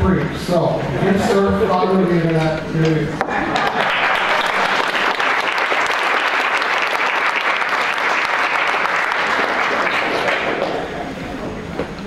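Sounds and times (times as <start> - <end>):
audience applauding: 2.2 - 11.1.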